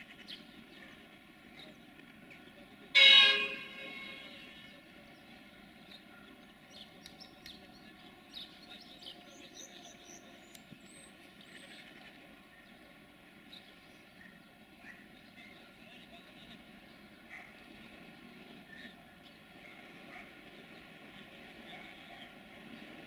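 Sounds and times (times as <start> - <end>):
loud horn-like tone: 3.0 - 4.7.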